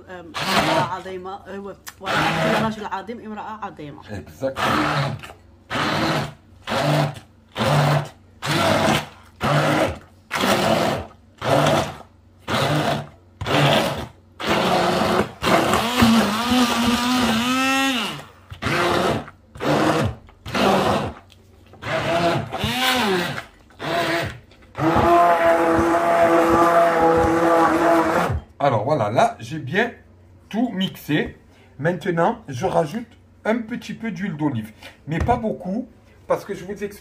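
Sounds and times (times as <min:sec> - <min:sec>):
immersion blender running: 0:00.3 - 0:01.0, 0:02.0 - 0:02.8, 0:04.4 - 0:28.5.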